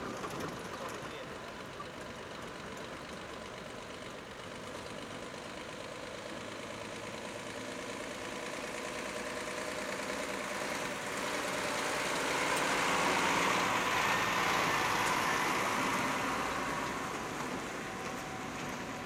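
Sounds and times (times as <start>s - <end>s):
truck driving past: 5.6s - 19.0s.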